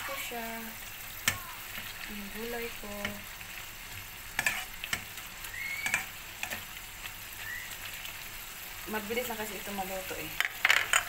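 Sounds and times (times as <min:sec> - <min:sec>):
vegetables sizzling in a wok: 0:00.0 - 0:11.0
spatula knocking and scraping pan: 0:04.4 - 0:05.1.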